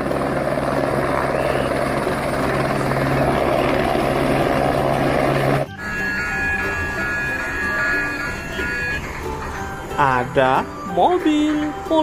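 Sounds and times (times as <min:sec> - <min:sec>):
electronic musical tones: 0:05.7 - 0:12.0
toy helicopter rotor whirring: 0:05.8 - 0:09.4.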